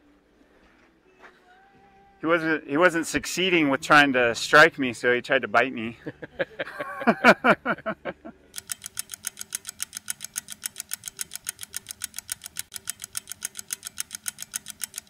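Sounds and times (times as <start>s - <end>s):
clock ticking: 8.6s - 15.0s.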